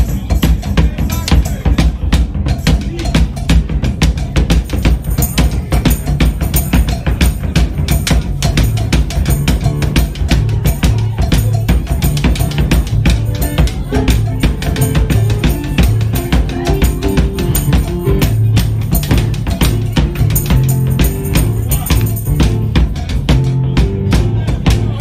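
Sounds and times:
drum kit: 0.0s - 25.0s
keyboard bass line: 0.0s - 25.0s
marching bass drum: 0.0s - 25.0s.

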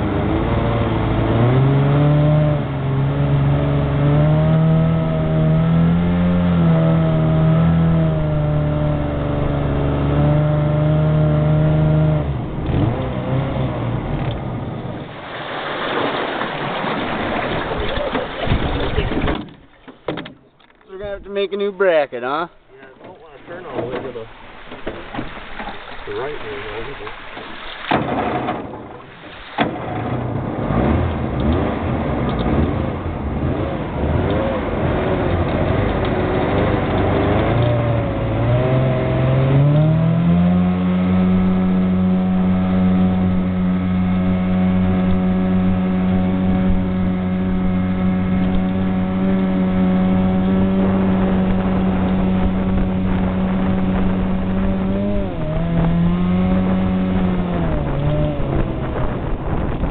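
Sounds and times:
boat engine droning: 0.0s - 59.9s.

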